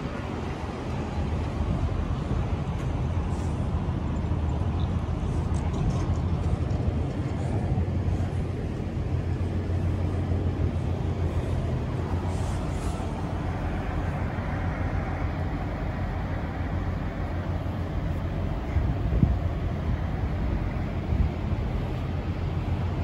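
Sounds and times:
diesel truck engine idling: 6.2s - 23.0s.

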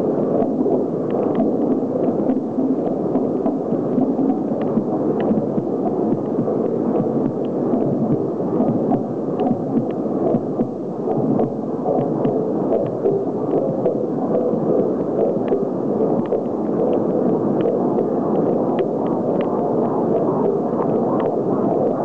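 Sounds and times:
heartbeats over loudspeakers: 0.2s - 22.0s.

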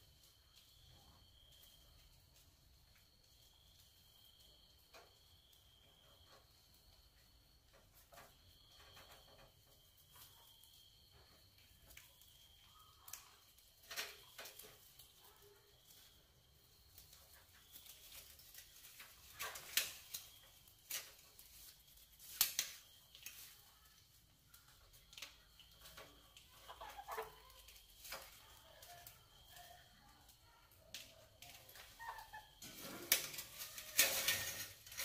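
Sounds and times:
rats squeaking: 24.9s - 35.0s
claws scratching on metal: 31.5s - 35.0s.

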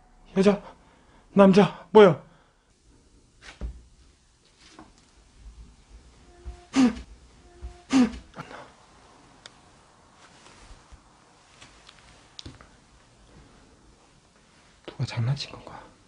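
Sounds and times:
footsteps on wooden floor: 5.6s - 7.9s
person clearing throat: 6.4s - 8.6s.

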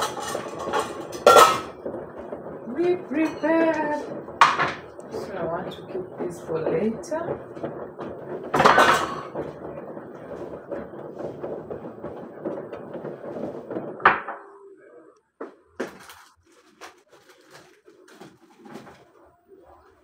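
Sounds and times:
dishes clattering on countertop: 0.0s - 5.1s, 7.3s - 14.4s.

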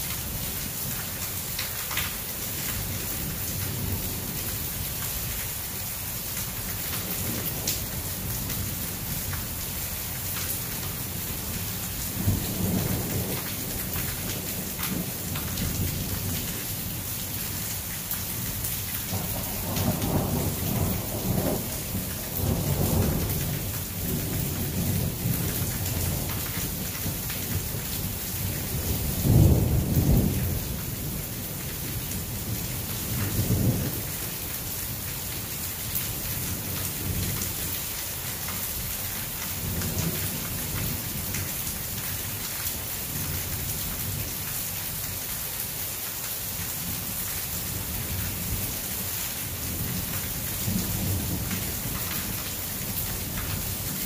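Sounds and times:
thunder rumbling: 19.1s - 34.1s.

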